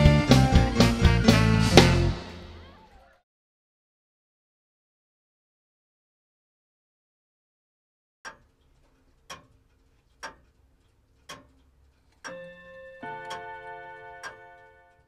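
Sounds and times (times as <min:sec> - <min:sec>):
clock ticking: 0:08.2 - 0:15.0
two-note doorbell chime: 0:12.3 - 0:15.0.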